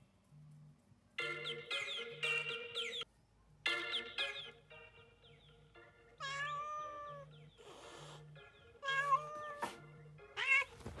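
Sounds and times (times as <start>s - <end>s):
cat meowing: 6.2s - 7.3s, 8.8s - 9.8s, 10.4s - 10.8s.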